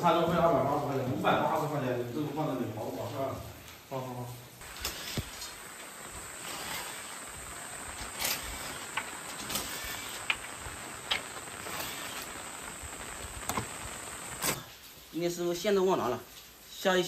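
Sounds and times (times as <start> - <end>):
rain falling: 0.0 - 17.0.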